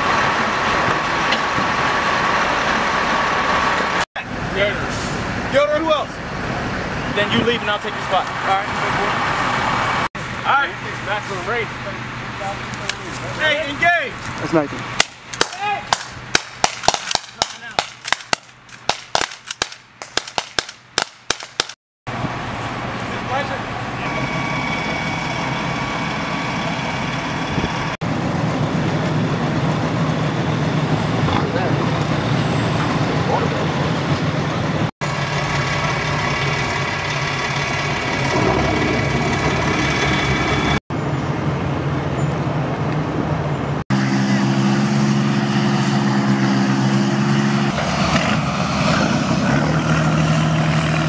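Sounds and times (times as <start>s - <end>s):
boat diesel engines droning: 0.0s - 16.4s, 22.1s - 51.0s
rifles firing in a volley: 15.0s - 21.8s.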